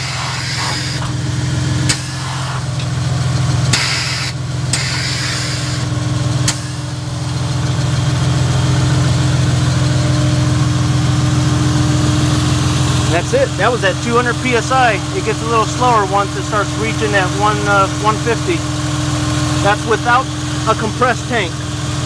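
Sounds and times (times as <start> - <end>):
air hiss bursts: 0.0 - 1.0, 1.9 - 2.6, 3.7 - 5.8
car engine idling: 0.0 - 22.0
sharp valve clicks: 3.7 - 5.7.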